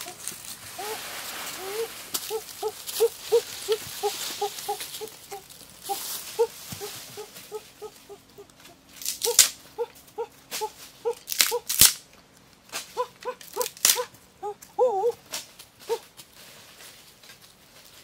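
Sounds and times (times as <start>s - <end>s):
puppy whimpering: 1.6s - 8.6s, 9.3s - 11.6s, 13.0s - 15.2s.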